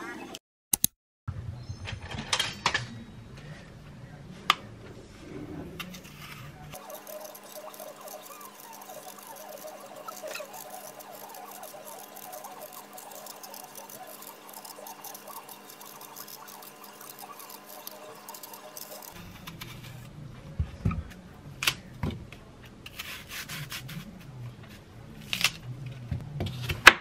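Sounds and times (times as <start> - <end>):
knife peeling apple: 5.8 - 20.1, 22.9 - 25.6.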